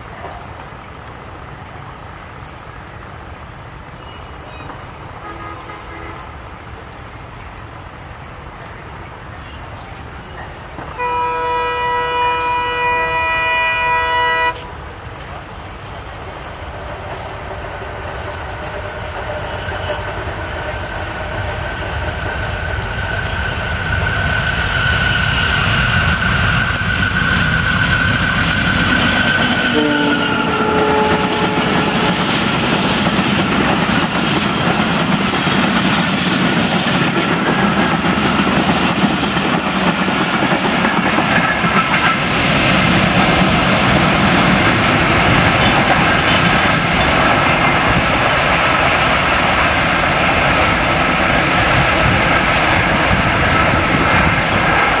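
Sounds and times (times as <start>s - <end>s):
locomotive passing: 0.0s - 55.0s
train wheels clattering on rails: 0.0s - 55.0s
train horn: 5.2s - 6.4s, 10.9s - 14.9s, 28.8s - 32.5s.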